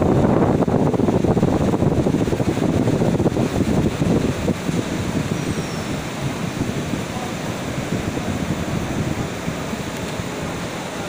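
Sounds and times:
diesel rail car idling: 0.0 - 11.0
faint murmur of voices: 7.0 - 8.4.

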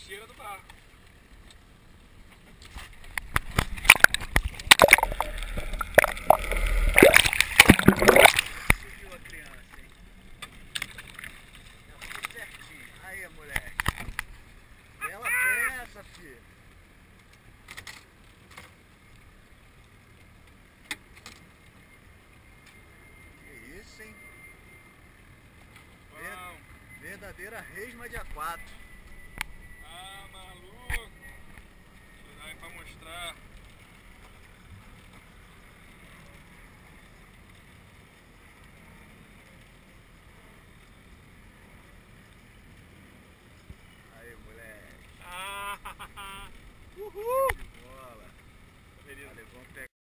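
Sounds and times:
wind: 0.0 - 49.9
sea noise: 1.2 - 15.8, 24.1 - 49.0
boat rushing over choppy water: 2.8 - 15.8.

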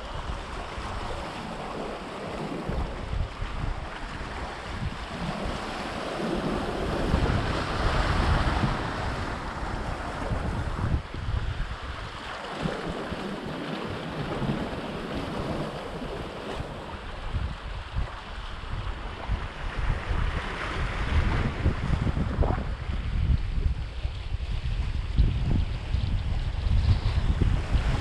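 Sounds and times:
wind buffeting microphone: 0.0 - 28.0
waves washing on rocks: 0.1 - 23.2.

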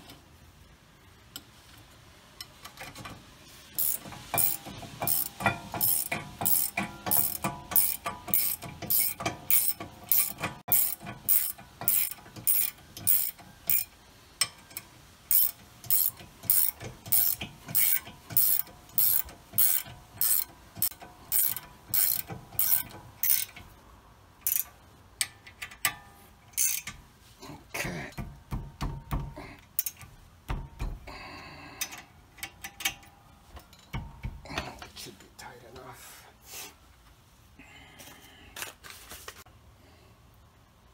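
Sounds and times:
ratcheting wrench clicking: 3.8 - 23.7, 24.4 - 26.0, 26.6 - 27.0, 29.7 - 30.1
dull metal knocks: 28.1 - 29.4, 30.4 - 31.1.

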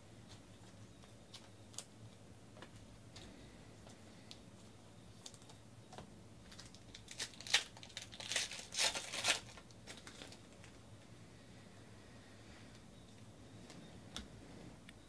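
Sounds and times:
foil wrapper crinkling: 6.4 - 10.8.

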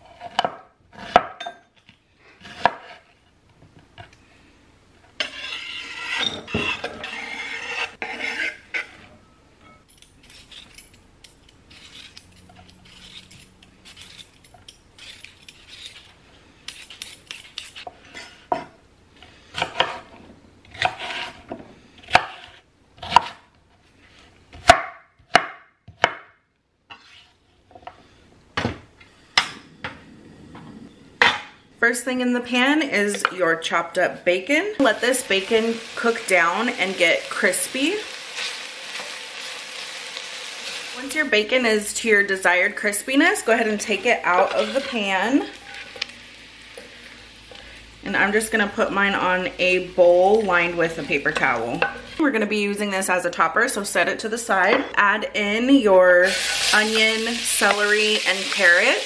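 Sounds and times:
vegetable peeler scraping potatoes: 5.2 - 9.0, 11.7 - 14.4, 15.0 - 17.9, 35.0 - 46.2, 48.3 - 52.2.

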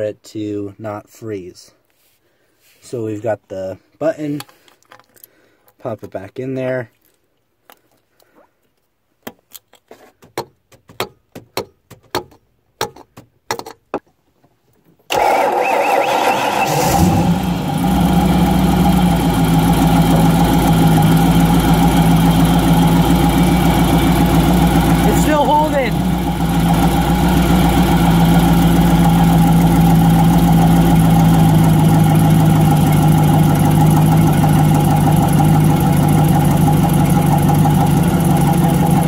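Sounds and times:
boat engine idling: 17.4 - 39.0.

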